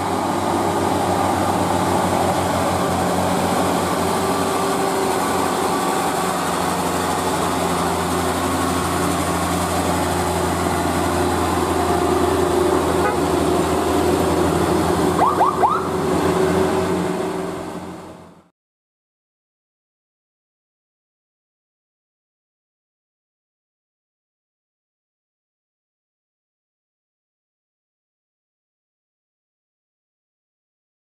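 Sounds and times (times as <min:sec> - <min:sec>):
diesel truck engine droning: 0:00.0 - 0:18.5.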